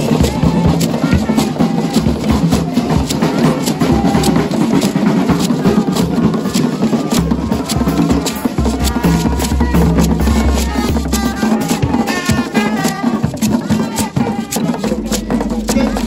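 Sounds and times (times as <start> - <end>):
marching drums: 0.0 - 16.0
trombones and trumpets: 7.0 - 16.0.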